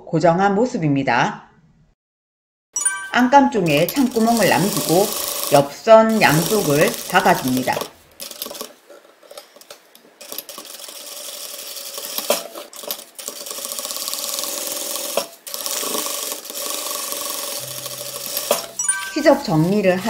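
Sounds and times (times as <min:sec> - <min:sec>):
sewing machine stitching: 0:03.6 - 0:09.4, 0:10.1 - 0:20.0.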